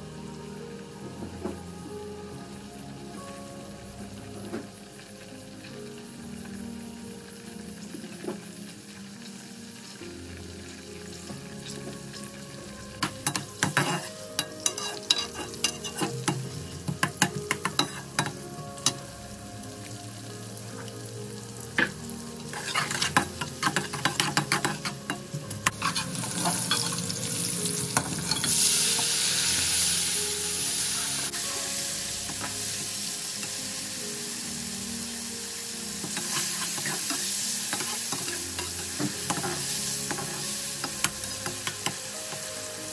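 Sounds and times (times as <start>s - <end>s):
onions sizzling in hot oil: 0.0s - 42.9s
spatula scraping metal pot: 13.2s - 16.4s, 22.5s - 27.0s.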